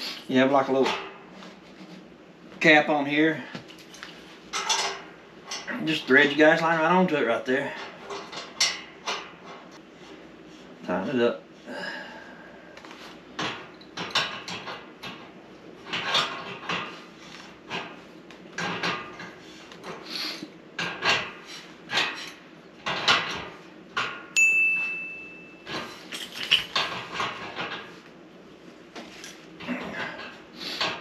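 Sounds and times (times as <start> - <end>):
steady high beep: 24.4 - 25.6.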